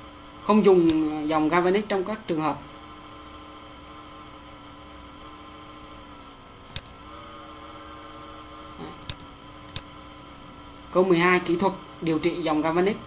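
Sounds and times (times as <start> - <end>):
electrical hum: 0.0 - 13.0
computer mouse clicks: 0.8 - 1.0, 6.7 - 7.0, 9.0 - 9.9.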